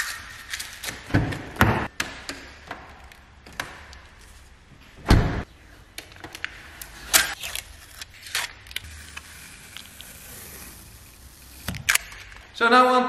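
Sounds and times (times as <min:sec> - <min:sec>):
plastic film peeling off: 0:06.8 - 0:12.5.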